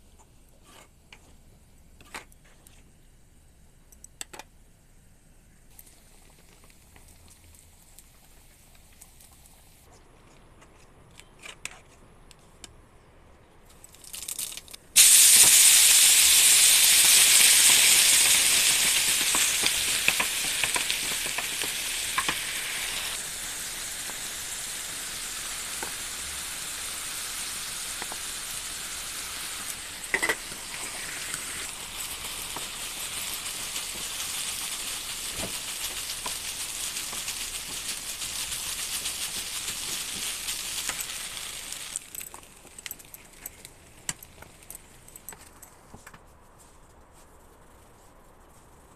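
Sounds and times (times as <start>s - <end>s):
food sizzling in a pan: 15.0s - 42.1s.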